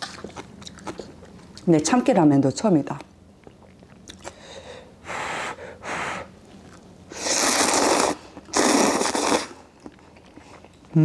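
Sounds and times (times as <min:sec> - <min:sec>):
person blowing on noodles: 0:05.0 - 0:06.3, 0:07.1 - 0:09.7
person slurping noodles: 0:07.1 - 0:09.7.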